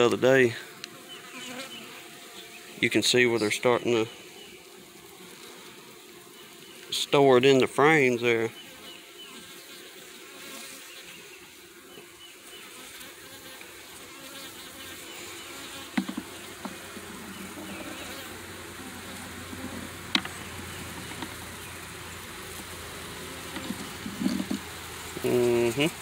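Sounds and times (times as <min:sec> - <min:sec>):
honeybees buzzing: 0:00.0 - 0:26.0
wood knocking on hive box: 0:15.8 - 0:18.0, 0:20.0 - 0:21.5, 0:23.4 - 0:25.3.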